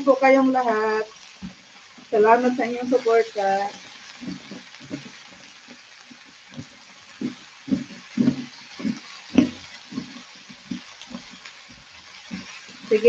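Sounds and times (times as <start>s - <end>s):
vegetables sizzling in a pan: 0.0s - 13.0s
spatula thumping and scraping: 3.8s - 12.9s.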